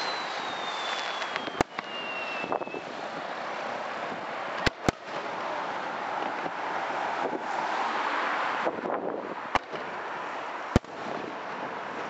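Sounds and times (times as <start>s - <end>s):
falling firework whistle: 0.0s - 3.0s
firework bangs: 0.0s - 6.6s, 10.7s - 11.6s
steady hiss: 0.0s - 7.0s.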